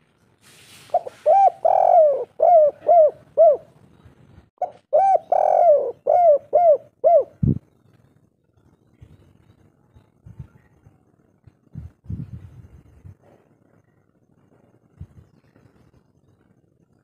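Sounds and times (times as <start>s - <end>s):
dove cooing: 0.9s - 3.8s, 4.6s - 7.6s.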